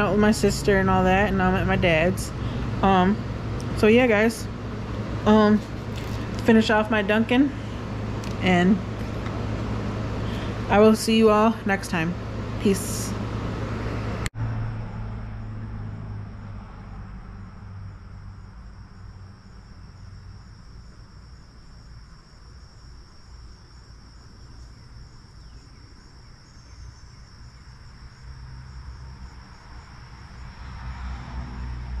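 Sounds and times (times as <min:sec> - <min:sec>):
insects chirring: 0:00.0 - 0:12.9, 0:15.4 - 0:32.0
low rumble: 0:11.9 - 0:19.4.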